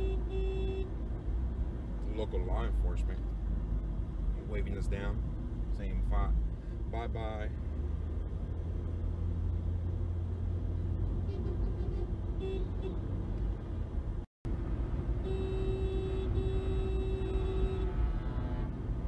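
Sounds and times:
vehicle horn long note: 0:00.0 - 0:00.9, 0:15.2 - 0:18.8
road and engine rumble inside car: 0:00.0 - 0:19.0.

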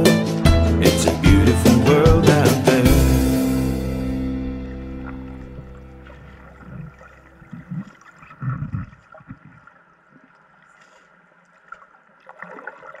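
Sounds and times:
muffled underwater gurgling: 0:04.7 - 0:09.6.

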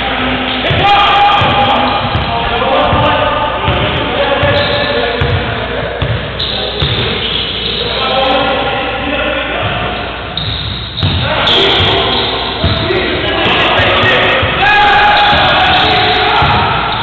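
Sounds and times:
voices in hall: 0:00.0 - 0:17.0
basketball bouncing on court floor: 0:00.7 - 0:07.2, 0:10.4 - 0:12.0, 0:12.6 - 0:14.6, 0:15.2 - 0:17.0.

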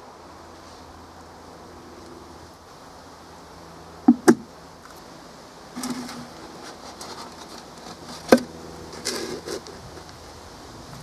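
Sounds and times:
sharp knocks on cardboard form: 0:04.1 - 0:04.5
cardboard rustling and scraping: 0:05.8 - 0:10.0.

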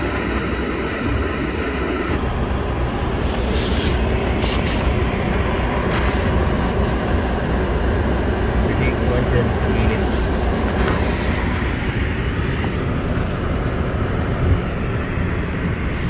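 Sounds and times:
car running noise: 0:00.0 - 0:16.0.

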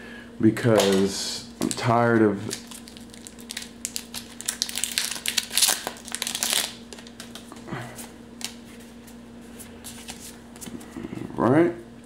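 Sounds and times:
cards being handled: 0:00.8 - 0:11.0
foil wrapper crinkling and tearing: 0:01.6 - 0:07.6.

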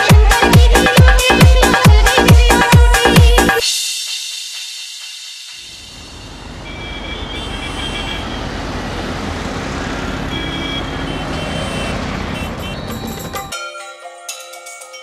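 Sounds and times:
road traffic: 0:05.5 - 0:13.5
motorcycle engines rumbling: 0:06.1 - 0:13.5.

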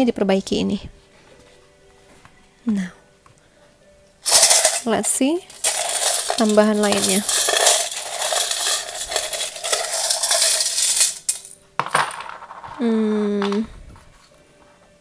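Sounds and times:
metal charms rattling in cup: 0:04.2 - 0:11.6
pieces clicking onto tray: 0:04.3 - 0:04.9, 0:05.5 - 0:12.8
person humming: 0:12.8 - 0:13.9.

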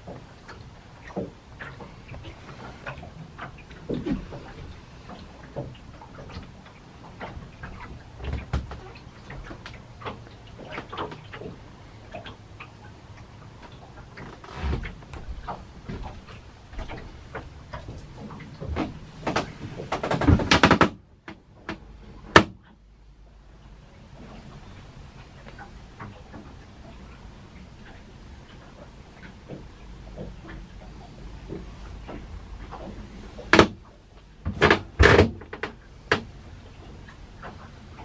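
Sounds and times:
knocks and clicks of handling things: 0:16.8 - 0:22.7, 0:32.8 - 0:33.8, 0:34.4 - 0:36.3.

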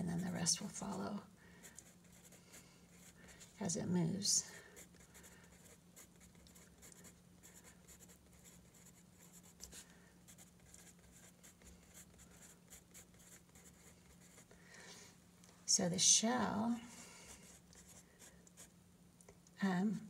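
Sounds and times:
low steady hum: 0:00.0 - 0:20.0
pencil scratching on paper: 0:01.7 - 0:03.8, 0:04.5 - 0:14.5.

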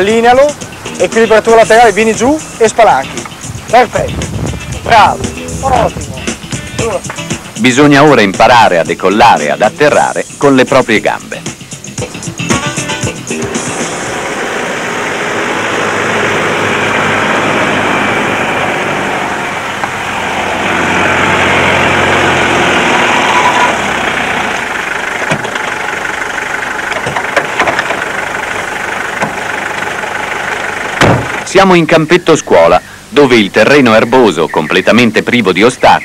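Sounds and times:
vehicle engine drone: 0:00.0 - 0:10.4, 0:11.2 - 0:31.6
wind noise rushing: 0:03.2 - 0:07.6
sharp knocks: 0:31.0 - 0:31.4.

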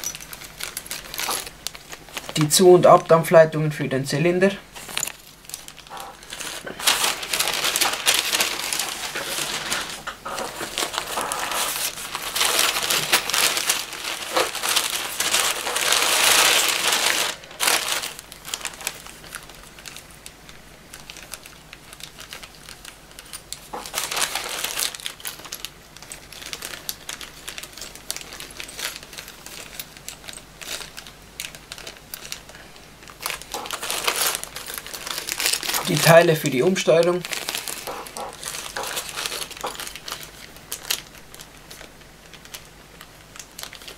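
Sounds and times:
plastic bags and paper crinkling: 0:00.0 - 0:43.9.

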